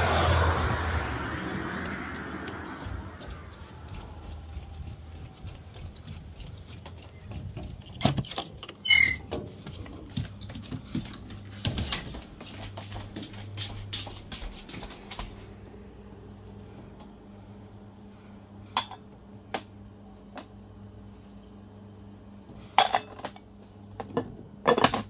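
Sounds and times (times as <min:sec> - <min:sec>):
brief high squeak: 0:08.6 - 0:09.2.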